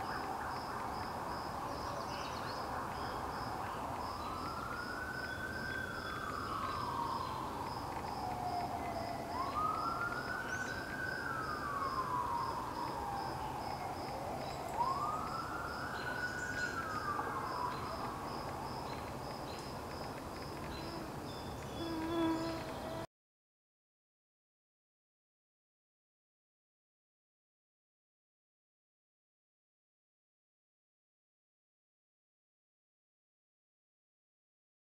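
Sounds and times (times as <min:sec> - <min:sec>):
siren wailing: 0:04.2 - 0:19.1.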